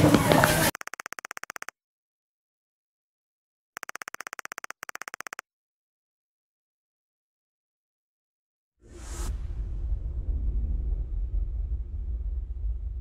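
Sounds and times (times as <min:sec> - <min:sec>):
fast electronic typing blips: 0:00.6 - 0:01.8, 0:03.8 - 0:05.4.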